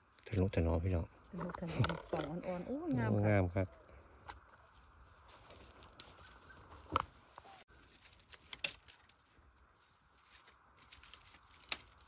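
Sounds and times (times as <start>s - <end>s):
dry bamboo rustling and crackling: 0.0s - 2.8s, 4.2s - 12.0s.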